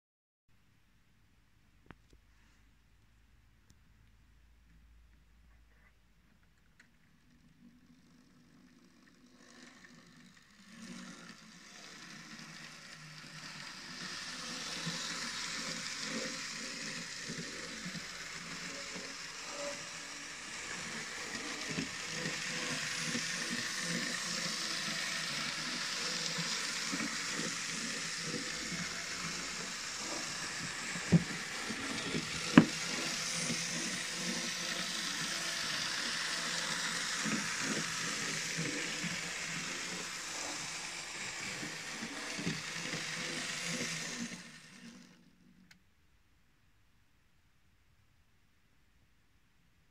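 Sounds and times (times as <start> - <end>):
model train motor hiss: 7.7 - 45.2.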